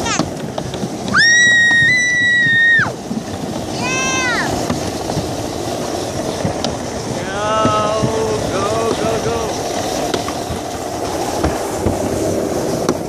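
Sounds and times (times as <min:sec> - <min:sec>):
sled rumbling down a chute: 0:00.0 - 0:13.0
person whooping: 0:01.1 - 0:03.0.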